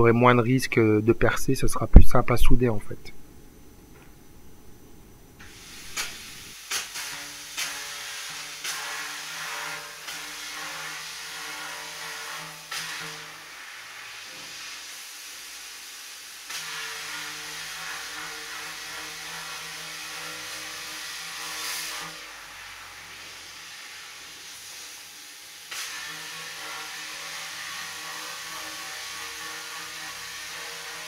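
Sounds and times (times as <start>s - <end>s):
steady low hum: 0.0s - 6.5s
plasma cutter arc hissing: 5.4s - 31.0s.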